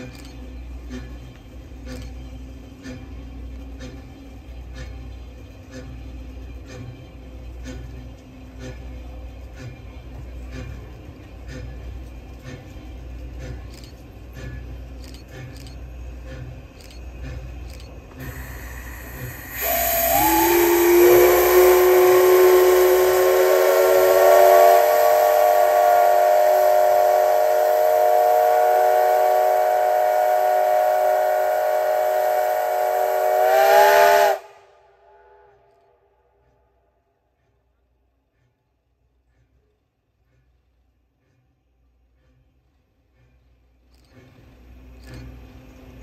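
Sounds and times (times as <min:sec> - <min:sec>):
steam hissing: 0:00.0 - 0:35.2
steam locomotive whistle: 0:17.7 - 0:35.8.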